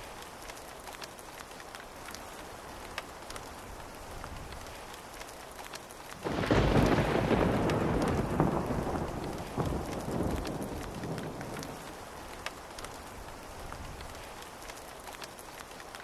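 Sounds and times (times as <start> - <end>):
raindrops ticking: 0.0 - 16.0
steady rain: 0.0 - 16.0
thunderclap rumbling: 6.2 - 14.1.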